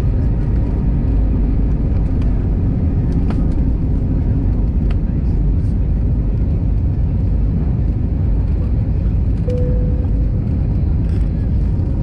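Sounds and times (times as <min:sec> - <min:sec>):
jet engines rumbling: 0:00.0 - 0:12.0
brief steady tone: 0:09.5 - 0:10.5.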